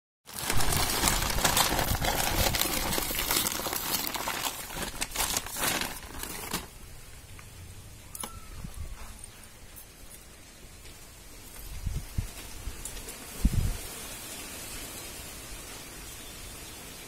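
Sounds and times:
plastic sack crinkling: 0.3s - 6.9s.

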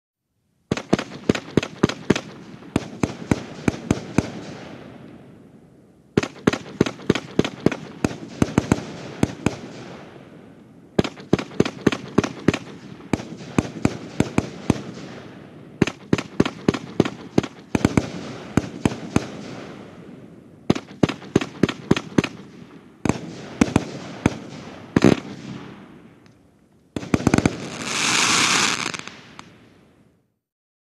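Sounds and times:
continuous rush of fireworks: 0.7s - 5.4s, 6.1s - 29.6s
fireworks bursting reports: 27.0s - 29.5s.

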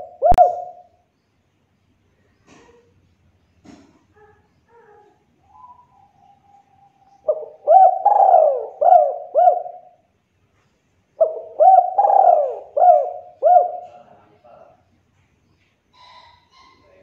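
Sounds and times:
dove cooing: 0.0s - 0.9s, 4.2s - 10.0s, 11.2s - 14.2s.

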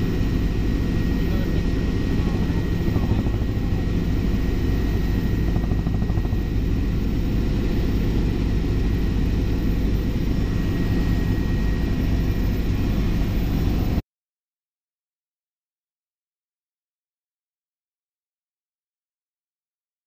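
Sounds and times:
helicopter rotor and engine drone: 0.0s - 14.0s
high whine: 0.0s - 14.0s.

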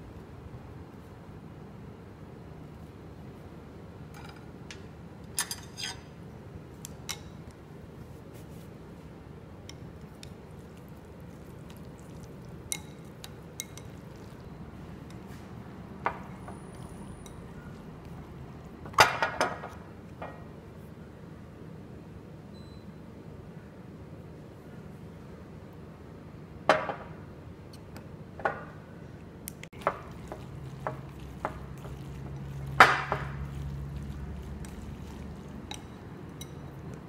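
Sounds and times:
chopsticks tapping ceramic bowl: 29.8s - 37.0s.

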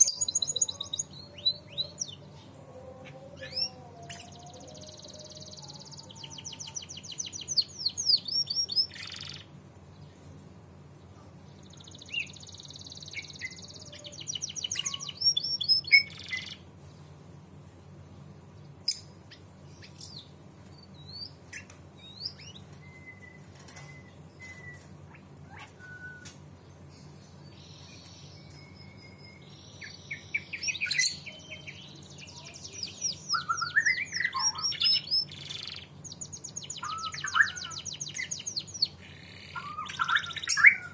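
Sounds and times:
faint low hum: 0.0s - 40.9s
canary trilling: 3.0s - 9.5s, 11.8s - 16.6s, 29.2s - 40.9s
bird chirps and whistles: 25.5s - 26.3s, 33.1s - 35.8s, 36.7s - 38.6s, 39.5s - 40.9s.

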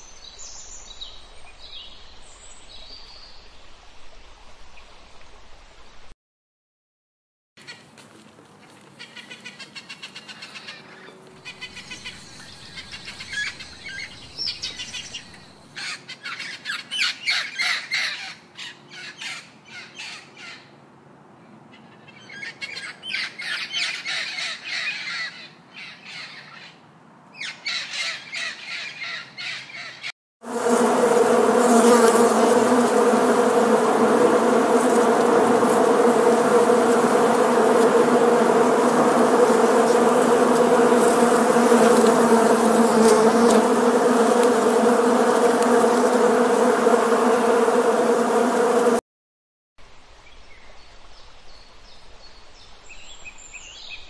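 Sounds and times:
honeybee colony buzzing: 11.4s - 15.5s, 30.4s - 49.0s.

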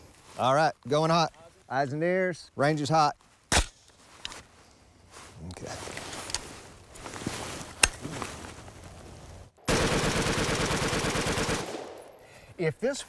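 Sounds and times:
rifle shot: 3.5s - 3.8s, 9.7s - 12.2s
rapid burst of gunshots: 9.7s - 12.0s.

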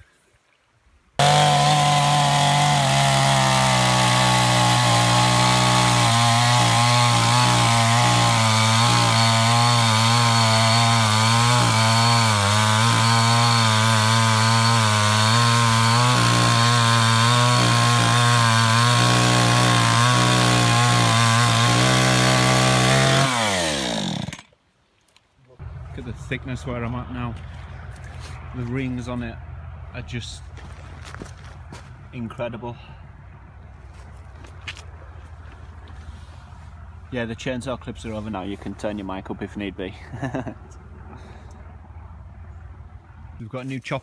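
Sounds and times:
chainsaw cutting a log: 1.2s - 24.5s.

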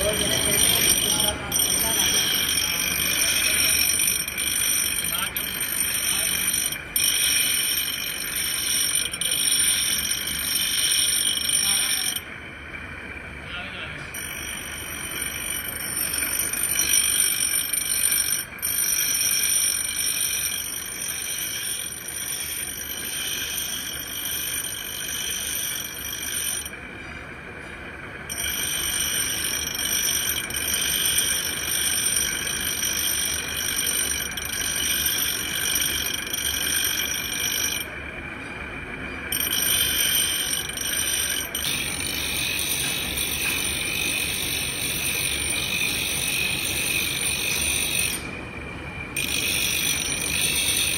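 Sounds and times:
grinding wheel whine: 0.0s - 50.9s.

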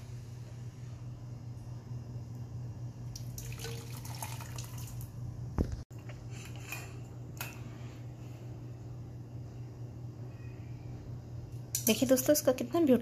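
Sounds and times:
tea pouring into a mug: 3.2s - 5.0s.

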